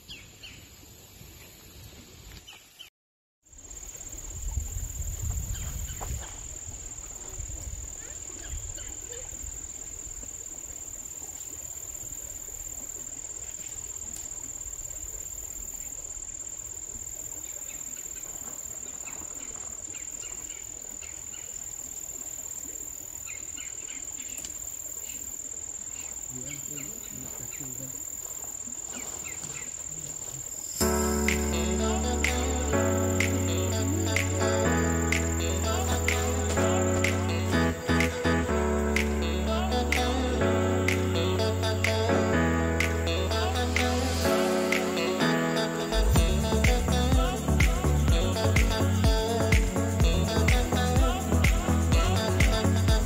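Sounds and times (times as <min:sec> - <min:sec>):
high-pitched insect chorus: 0:03.5 - 0:53.0
low rumble: 0:46.0 - 0:53.0.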